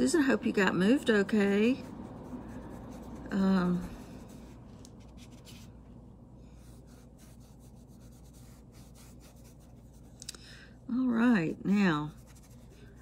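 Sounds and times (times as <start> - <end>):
low steady hum: 0.0 - 13.0
paintbrush strokes: 1.1 - 5.8, 6.4 - 10.2, 11.7 - 13.0.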